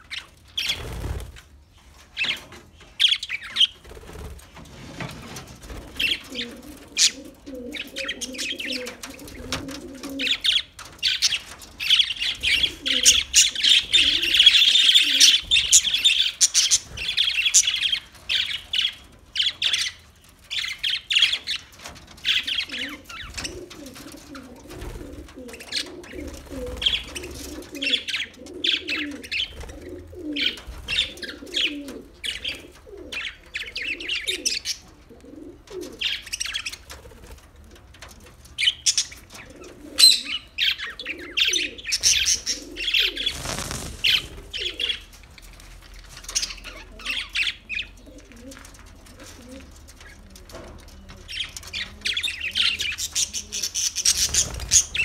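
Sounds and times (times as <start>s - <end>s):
wings fluttering: 0.1s - 28.0s, 41.9s - 47.5s, 52.9s - 55.0s.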